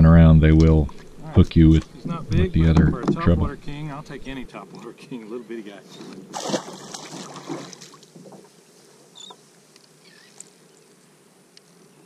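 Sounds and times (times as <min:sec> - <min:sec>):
faint water sounds around hull: 0:00.5 - 0:11.8
fish splashing into water: 0:06.3 - 0:08.0.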